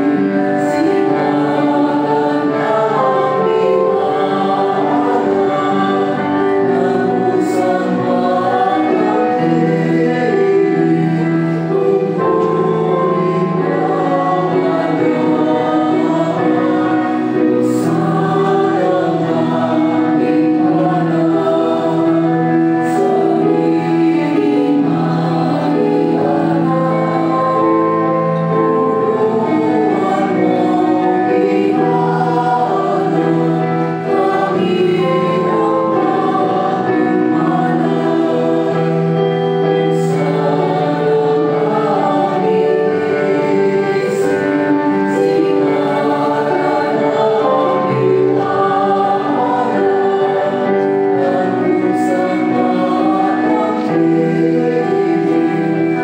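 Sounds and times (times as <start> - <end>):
choir singing a hymn: 0.0 - 56.0
organ chords: 0.0 - 56.0.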